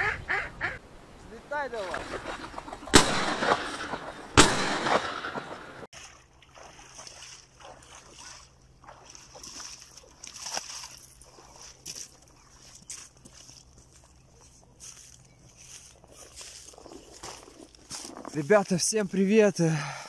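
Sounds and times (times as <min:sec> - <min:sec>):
shotgun shots with echo: 0:02.9 - 0:05.9
boots wading through water: 0:05.8 - 0:20.0.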